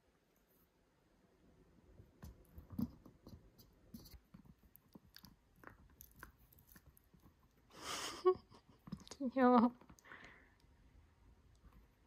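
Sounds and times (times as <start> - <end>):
dog chewing and gnawing: 4.3 - 7.6.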